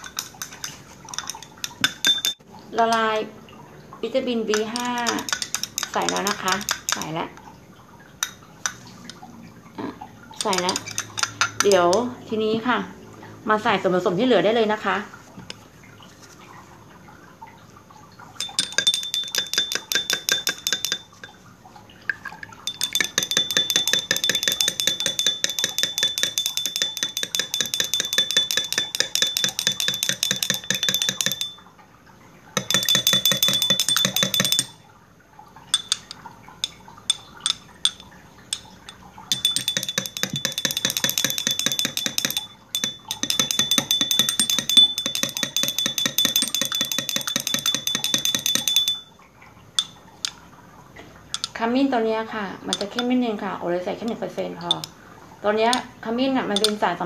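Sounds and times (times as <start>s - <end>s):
stirrer clinking against glass: 0.0s - 3.1s, 4.5s - 7.2s, 8.2s - 9.0s, 10.4s - 12.1s, 18.4s - 21.4s, 22.1s - 31.7s, 32.6s - 34.8s, 35.7s - 49.2s, 49.8s - 50.4s, 51.3s - 51.6s, 52.7s - 53.2s, 54.0s - 55.0s, 56.5s - 56.8s.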